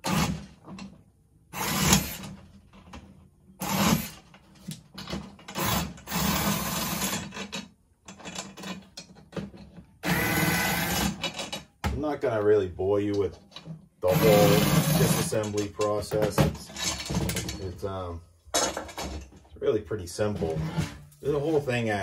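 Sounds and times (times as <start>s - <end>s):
power drill whirring: 0.0s - 0.4s, 1.5s - 2.4s, 3.6s - 4.2s, 5.5s - 7.3s, 10.0s - 11.2s, 14.0s - 15.4s.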